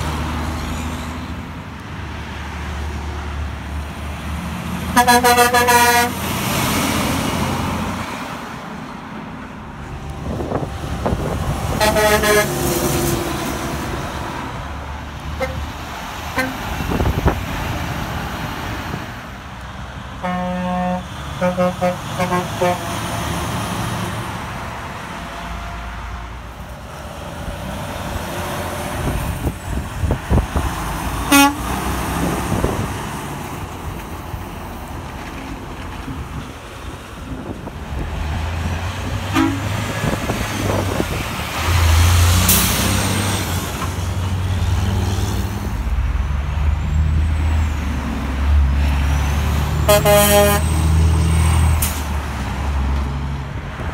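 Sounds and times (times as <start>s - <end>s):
diesel truck engine passing: 0.0s - 53.9s
truck air horn blasts: 4.9s - 6.2s, 10.1s - 13.1s, 15.4s - 15.7s, 16.3s - 16.6s, 20.2s - 23.1s, 31.2s - 31.8s, 39.3s - 39.8s, 49.8s - 50.9s
short horn toot: 39.3s - 39.7s, 49.9s - 50.7s.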